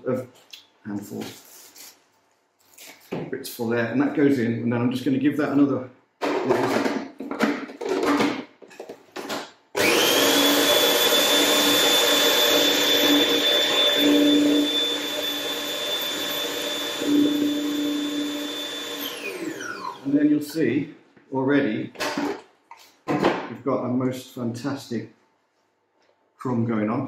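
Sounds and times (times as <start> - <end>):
food processor motor whining: 9.8 - 20.1.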